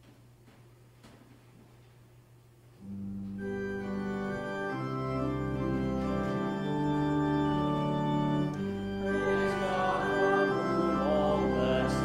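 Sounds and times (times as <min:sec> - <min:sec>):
church organ chords: 0:02.8 - 0:12.0.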